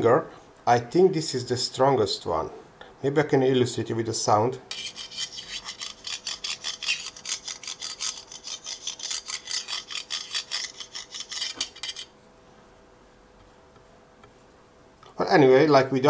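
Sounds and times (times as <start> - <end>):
metal bar scraping engraved steel: 4.7 - 12.1.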